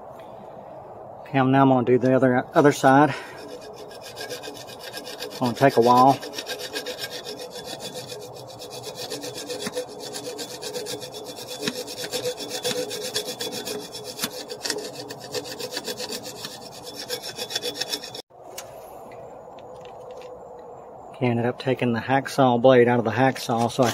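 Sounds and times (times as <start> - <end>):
hacksaw sawing through metal: 2.6 - 18.3, 23.4 - 23.9.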